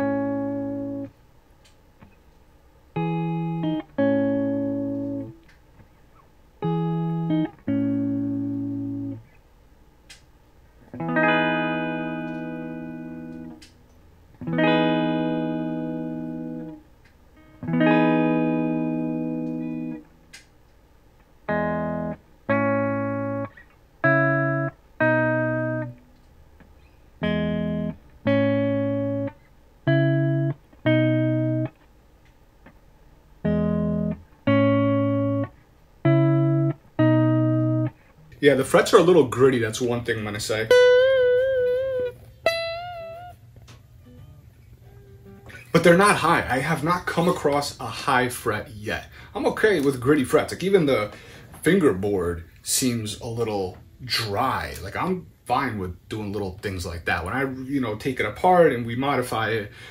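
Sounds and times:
clean electric guitar chords: 0.0s - 1.2s, 2.9s - 5.4s, 6.6s - 9.3s, 10.8s - 20.4s, 21.4s - 31.8s, 33.4s - 38.3s, 40.7s - 46.9s.

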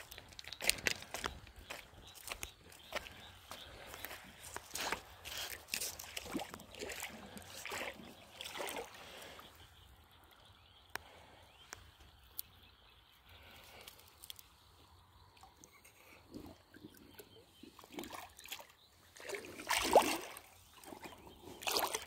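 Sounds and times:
river water splashing: 4.6s - 9.4s, 17.7s - 22.0s.

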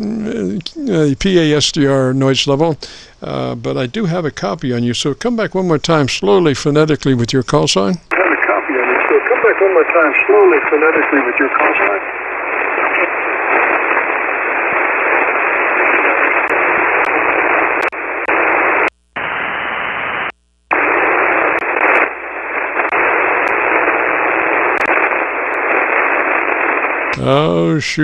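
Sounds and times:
radio static hiss: 0.0s - 28.0s
static clicks: 7.0s - 27.2s.

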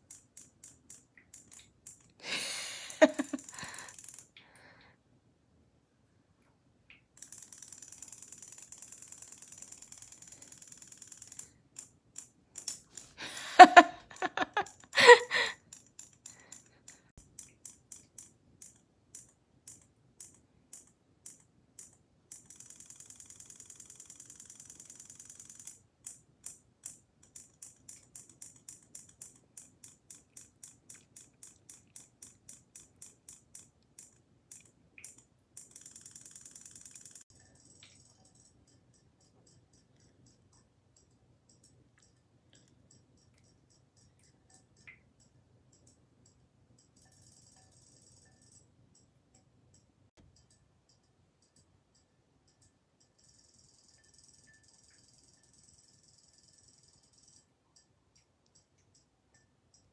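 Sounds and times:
toy motor quick ticks: 0.1s - 4.4s, 7.2s - 13.8s, 14.6s - 40.4s
toy motor high-pitched buzz: 2.2s - 4.3s, 7.2s - 11.5s, 22.4s - 25.8s, 35.6s - 38.0s.

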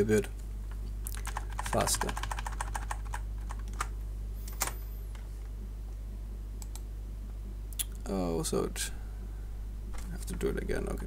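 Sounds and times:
low electrical hum: 0.0s - 11.0s
typing on computer keyboard: 1.1s - 3.9s.

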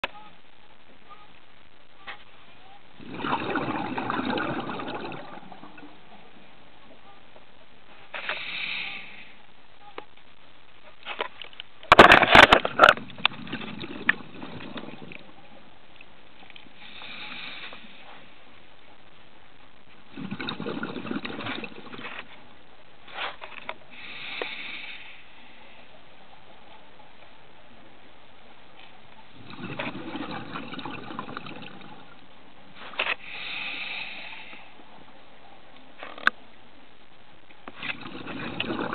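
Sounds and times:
soft water rush: 2.7s - 7.2s, 12.3s - 23.1s, 23.8s - 38.9s
scuba exhaust bubbles crackling: 3.0s - 6.3s, 12.1s - 18.0s, 19.9s - 22.3s, 29.4s - 32.3s, 37.7s - 38.9s
underwater hiss: 8.1s - 9.4s, 16.8s - 18.3s, 23.9s - 25.8s, 33.2s - 34.8s.

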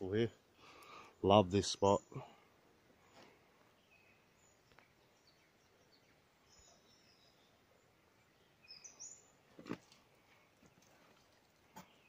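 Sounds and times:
faint high bird calls: 3.0s - 9.4s.

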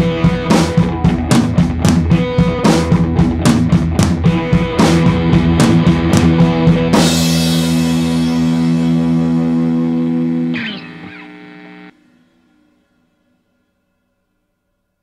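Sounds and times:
rock drums: 0.0s - 12.1s
guitar chord ringing: 4.3s - 13.7s.

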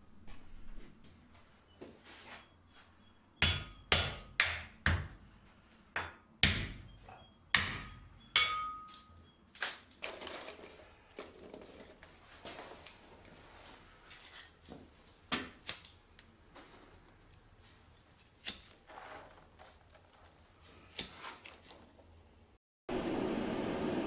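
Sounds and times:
hammer striking steel on anvil: 3.4s - 5.1s, 6.0s - 9.2s
rustling of paper and kindling: 9.7s - 15.3s, 16.4s - 22.1s.

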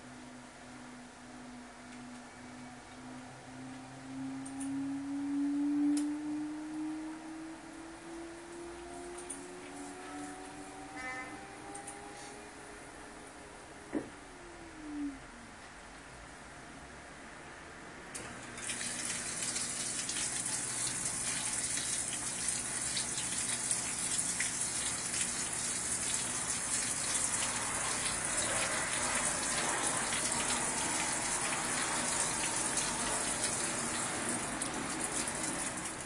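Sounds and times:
water spraying into washing machine: 18.4s - 36.0s.

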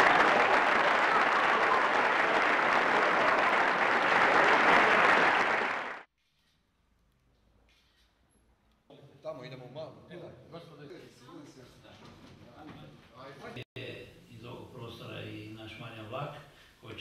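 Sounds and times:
crowd applauding: 0.0s - 6.1s.

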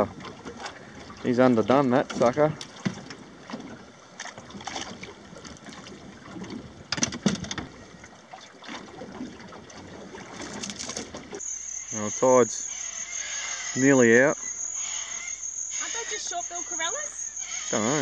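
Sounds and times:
water lapping against boat hull: 0.0s - 11.4s
knocks on boat: 2.0s - 3.8s, 6.5s - 7.8s.

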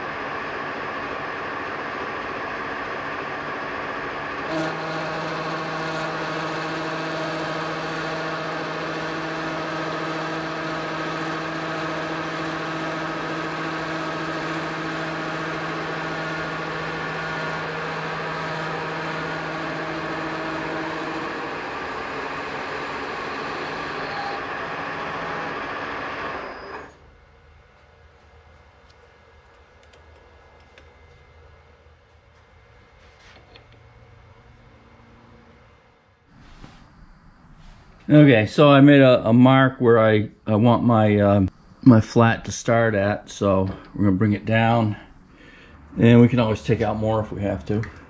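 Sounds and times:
metal lathe running: 0.0s - 27.0s
steady pitched hum: 0.0s - 48.0s
click: 28.8s - 31.2s.

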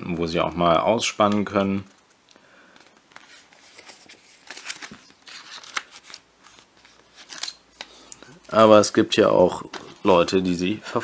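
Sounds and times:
comic book pages turning: 1.3s - 8.8s.

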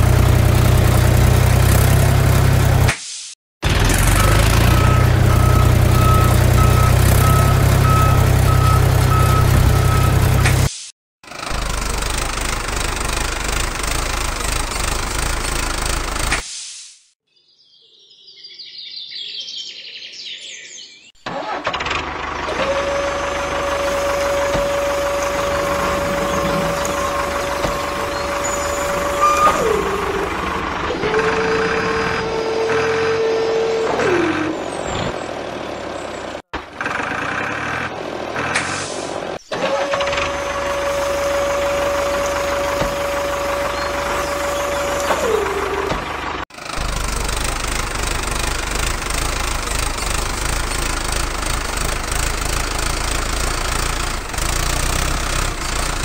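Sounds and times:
engine-like rumble: 11.3s - 16.3s, 21.3s - 56.0s.

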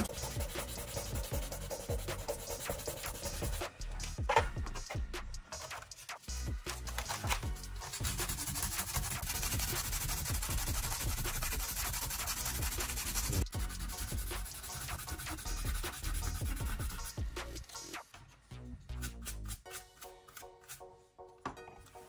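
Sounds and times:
sandpaper rubbing on plastic: 0.0s - 3.7s, 5.6s - 18.0s.

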